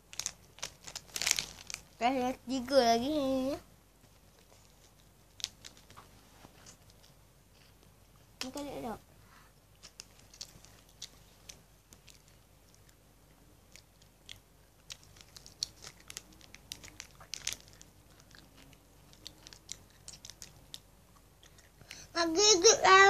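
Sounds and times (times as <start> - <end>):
crackers being crunched: 0.0 - 2.0, 4.4 - 7.2, 9.8 - 13.0, 13.7 - 22.0.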